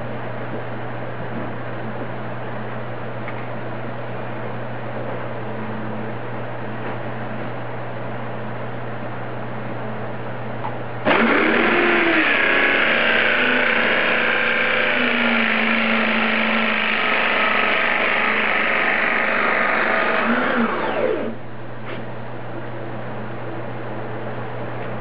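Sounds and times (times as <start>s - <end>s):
cutter shaving wood: 11.1s - 21.4s
electric drill running: 11.1s - 21.4s.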